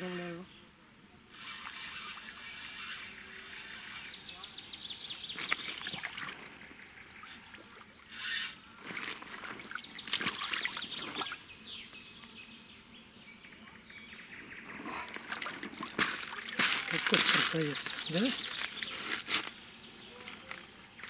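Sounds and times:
birds calling: 0:00.2 - 0:21.0
water splashing and trickling: 0:01.4 - 0:03.6, 0:05.2 - 0:08.1, 0:08.8 - 0:11.5, 0:14.7 - 0:19.5.

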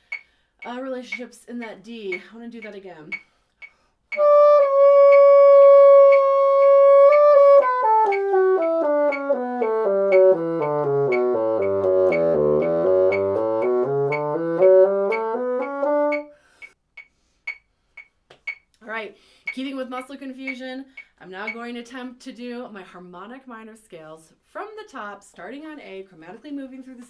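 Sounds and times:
faint steady ticking: 0:00.0 - 0:22.0
bassoon playing a scale: 0:04.1 - 0:16.4.

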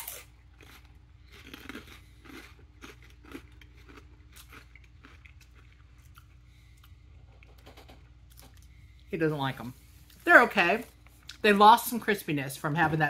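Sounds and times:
person chewing crunchy snack: 0:00.0 - 0:07.6.

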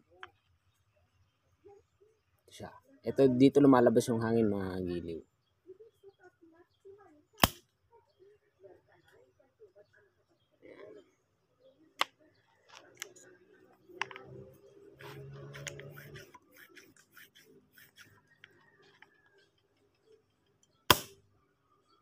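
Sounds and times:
air gun sharp pop: 0:07.4 - 0:07.6, 0:20.9 - 0:21.2
clicks and scrapes of air gun handling: 0:15.0 - 0:19.5.

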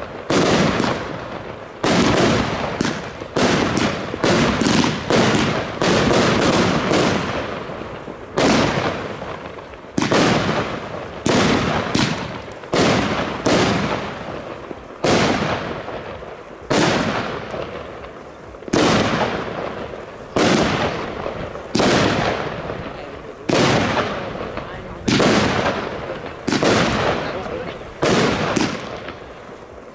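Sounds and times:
firework bangs: 0:00.0 - 0:29.9.

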